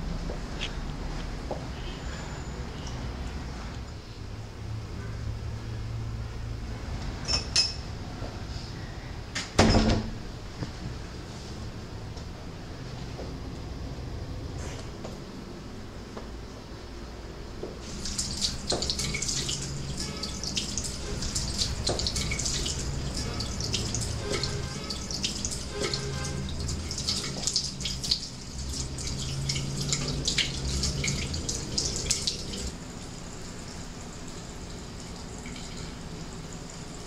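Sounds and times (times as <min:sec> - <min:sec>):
hands washing and splashing: 0:17.8 - 0:32.7
sink tap running: 0:17.8 - 0:36.0.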